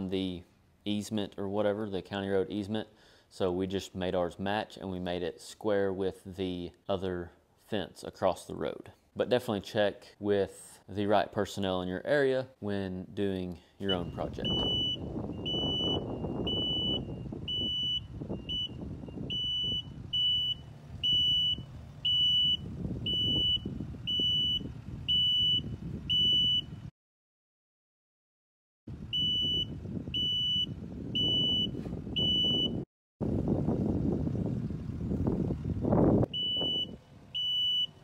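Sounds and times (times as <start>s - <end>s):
reversing alarm beeping: 13.9s - 26.8s, 29.1s - 32.8s, 36.3s - 38.0s.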